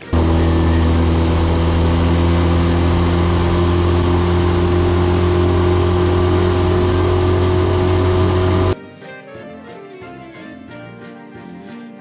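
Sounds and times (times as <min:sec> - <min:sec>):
outboard motor running: 0:00.0 - 0:08.8.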